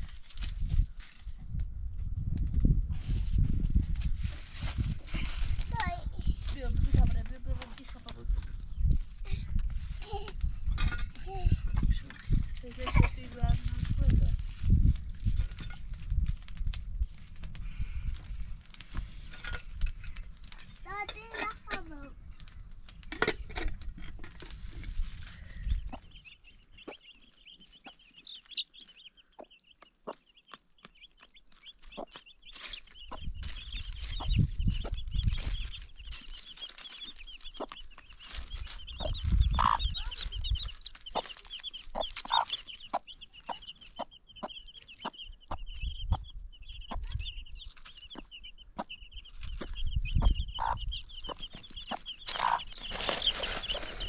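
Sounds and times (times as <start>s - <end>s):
dry leaves clicking: 0.0s - 1.4s, 3.0s - 10.5s, 12.2s - 26.2s, 30.5s - 45.1s, 47.0s - 48.4s, 49.2s - 54.0s
chicks peeping: 24.6s - 54.0s
hen clucking: 25.6s - 54.0s.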